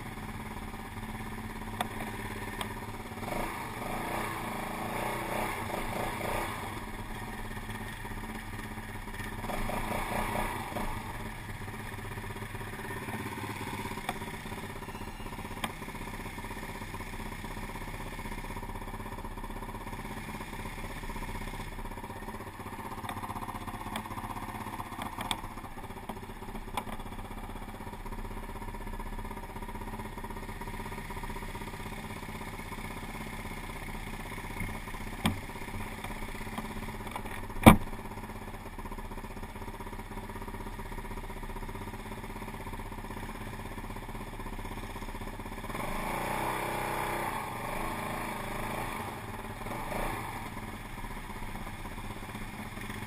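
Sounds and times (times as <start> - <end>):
quad bike engine idling: 0.0 - 53.0.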